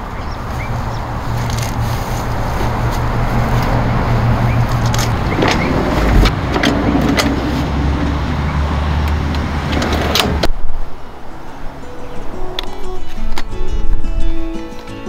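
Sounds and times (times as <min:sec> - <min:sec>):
car engine and road noise: 0:00.0 - 0:15.0
knocks and rattles: 0:02.6 - 0:08.4.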